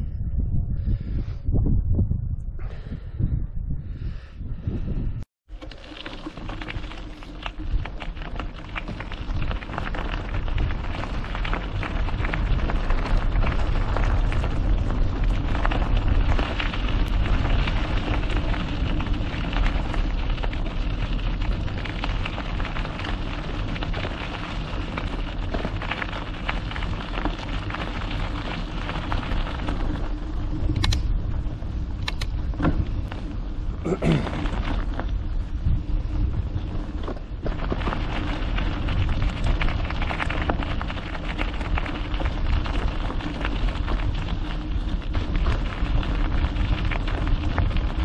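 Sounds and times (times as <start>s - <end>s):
wind on microphone: 0.0s - 5.3s, 6.5s - 48.0s
bike rattling: 5.5s - 48.0s
bike tyres crunching on stones: 5.5s - 48.0s.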